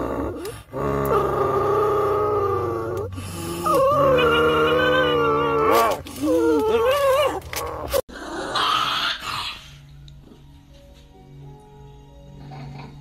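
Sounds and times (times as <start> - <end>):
dog howling: 0.0 - 9.2.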